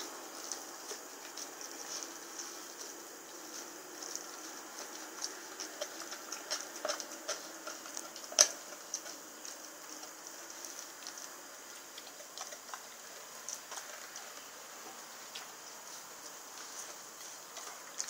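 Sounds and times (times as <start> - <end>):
dog chewing meat and bone: 0.3 - 18.0.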